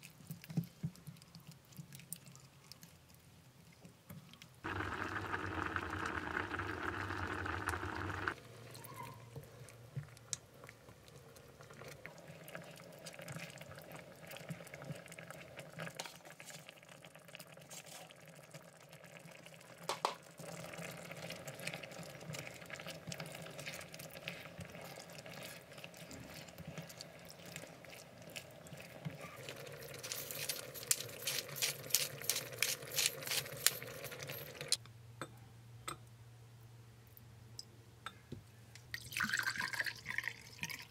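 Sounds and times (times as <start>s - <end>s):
sauce bubbling in a pot: 0.0s - 34.8s, 39.0s - 40.9s
pepper mill grinding: 22.9s - 34.8s.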